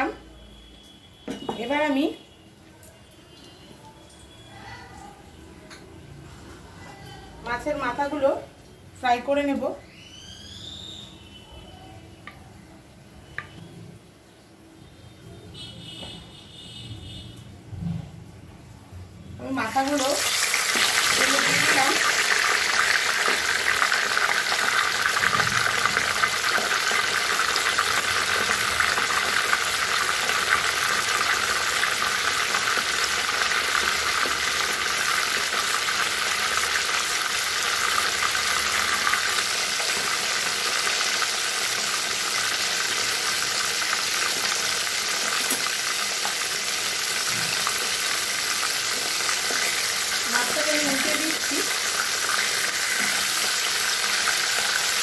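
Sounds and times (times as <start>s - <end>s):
fish frying in hot oil: 19.4s - 55.0s.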